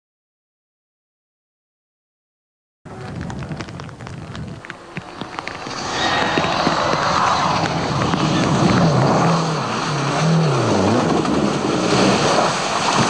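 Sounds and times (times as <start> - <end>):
rally car engine revving past: 5.2 - 13.0.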